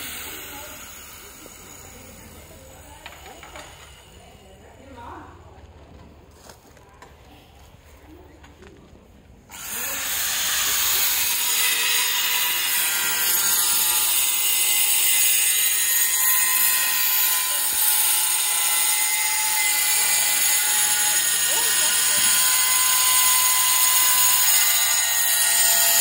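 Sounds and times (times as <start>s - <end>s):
angle grinder cutting tile: 0.0s - 4.1s, 9.5s - 26.0s.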